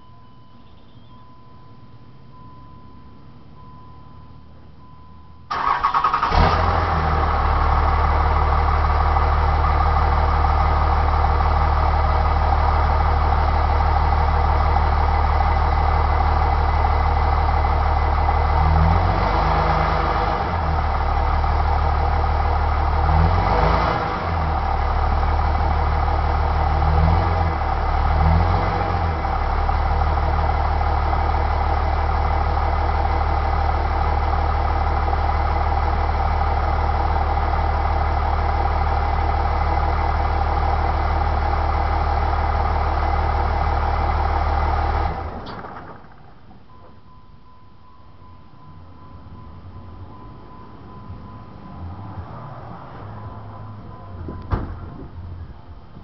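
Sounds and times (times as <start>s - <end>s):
diesel engine idling: 0.0s - 56.0s
diesel engine cranking: 5.5s - 47.4s.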